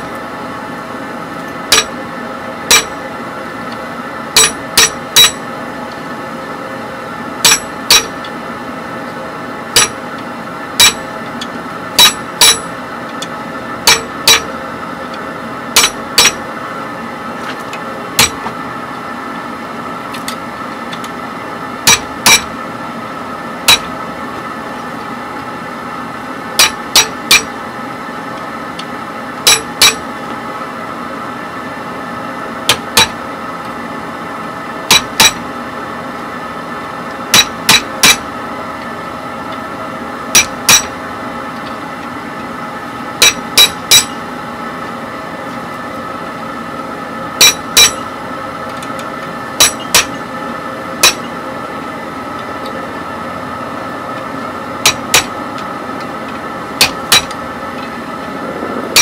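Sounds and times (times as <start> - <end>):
steady background hum: 0.0 - 59.0
hammer striking chisel on iron: 1.7 - 1.9, 2.7 - 3.0, 4.4 - 5.4, 7.4 - 8.2, 9.8 - 10.0, 10.8 - 11.1, 12.0 - 12.7, 13.9 - 14.5, 15.8 - 16.4, 18.2 - 18.5, 21.9 - 22.5, 23.7 - 23.9, 26.6 - 27.5, 29.5 - 30.0, 32.7 - 33.2, 34.9 - 35.4, 37.3 - 38.2, 40.4 - 40.9, 43.2 - 44.2, 47.4 - 48.1, 49.6 - 50.2, 51.0 - 51.3, 54.8 - 55.4, 56.8 - 57.4.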